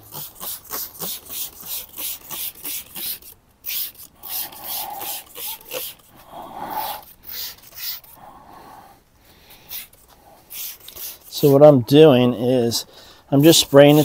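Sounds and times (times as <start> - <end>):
spray bottle hissing squirts: 0.1 - 6.2, 9.7 - 11.4.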